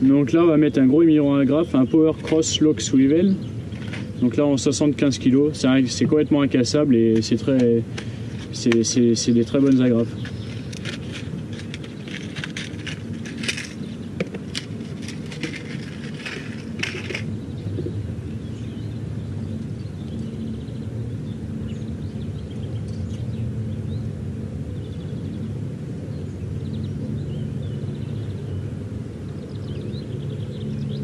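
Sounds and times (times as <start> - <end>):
steady low rumble: 0.0 - 31.0.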